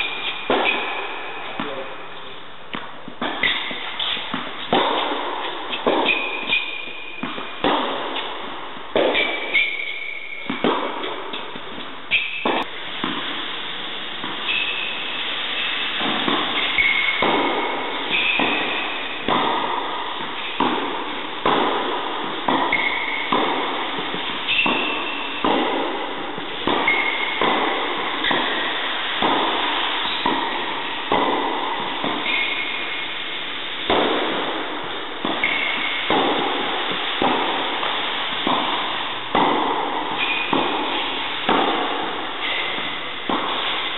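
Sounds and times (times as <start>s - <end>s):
tennis ball hits: 0.0s - 2.0s, 2.7s - 13.4s, 15.6s - 33.0s, 33.8s - 43.9s
shoes squeaking on court: 3.4s - 4.4s, 5.7s - 7.5s, 9.2s - 10.7s, 16.6s - 17.2s, 22.6s - 23.4s, 26.8s - 27.4s, 35.4s - 36.0s.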